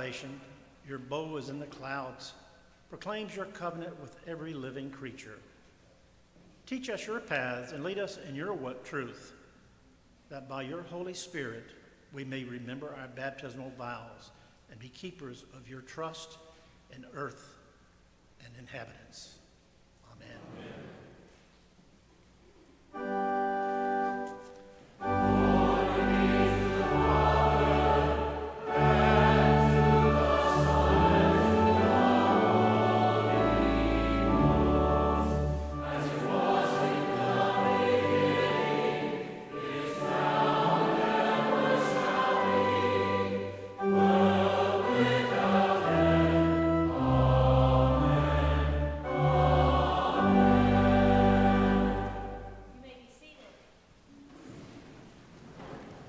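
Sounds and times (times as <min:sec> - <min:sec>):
pipe organ: 0:22.8 - 0:52.8
choir singing a hymn: 0:22.9 - 0:52.8.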